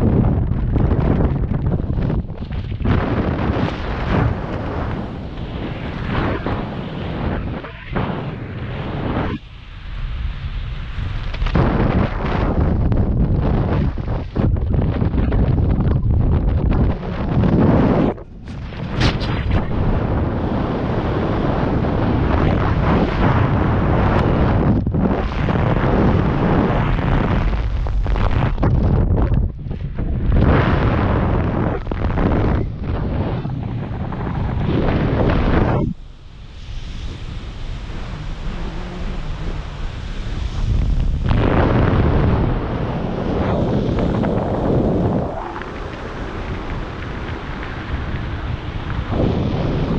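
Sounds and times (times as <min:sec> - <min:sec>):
wind roar on microphone: 0:00.0 - 0:49.9.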